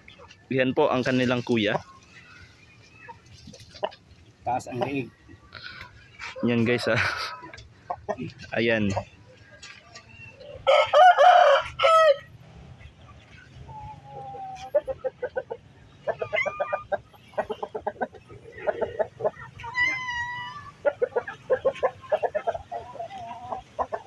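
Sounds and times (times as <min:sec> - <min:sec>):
chickens clucking: 0:00.0 - 0:24.0
rooster crowing: 0:10.6 - 0:12.3.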